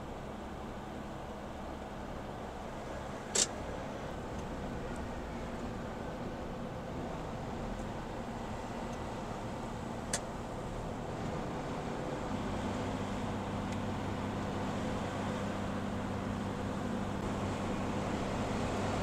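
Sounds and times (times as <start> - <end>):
truck engine and road drone: 0.0 - 19.0
sharp click: 3.3 - 3.6.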